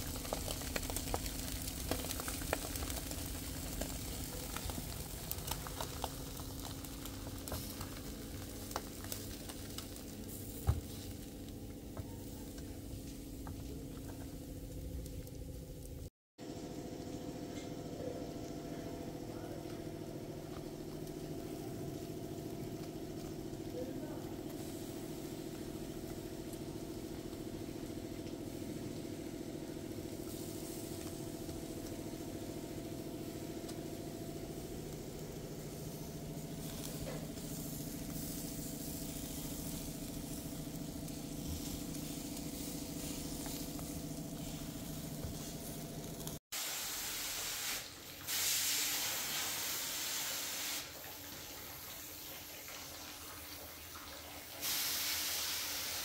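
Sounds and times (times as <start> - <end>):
fish sizzling on a grill: 0.0 - 16.1, 16.7 - 56.0
spraying hiss bursts: 46.6 - 52.5, 54.6 - 56.0.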